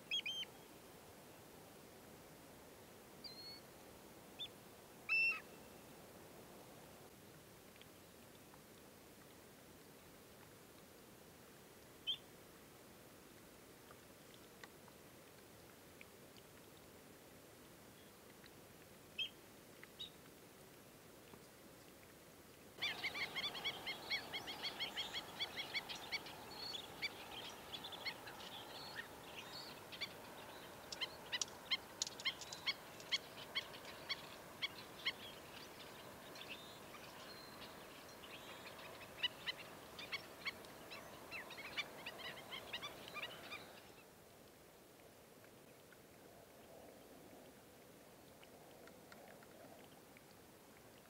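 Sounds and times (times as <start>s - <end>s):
flock of birds calling: 22.8s - 35.3s.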